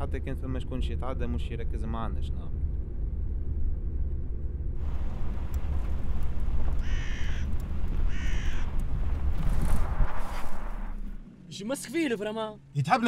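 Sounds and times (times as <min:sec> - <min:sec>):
low rumble: 0:00.0 - 0:11.5
muffled car cabin hum: 0:04.8 - 0:11.2
crow cawing: 0:04.9 - 0:09.3.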